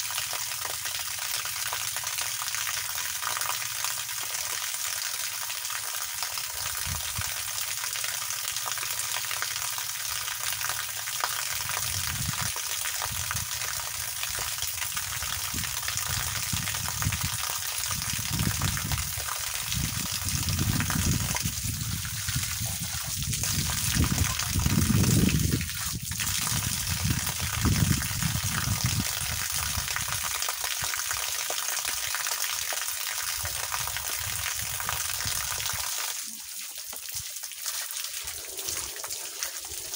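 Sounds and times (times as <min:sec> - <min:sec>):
hose spraying water: 0:34.9 - 0:39.9.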